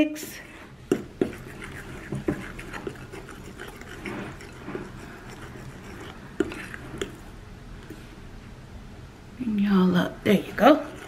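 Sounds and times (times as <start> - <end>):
fork mashing cake mix: 0.7 - 8.0, 10.2 - 11.0.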